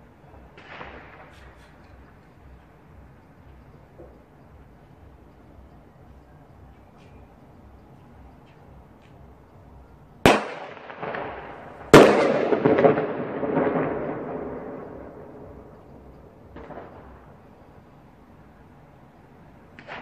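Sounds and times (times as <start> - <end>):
pyrotechnic bangs: 0.0 - 2.4, 10.2 - 17.6, 19.7 - 20.0.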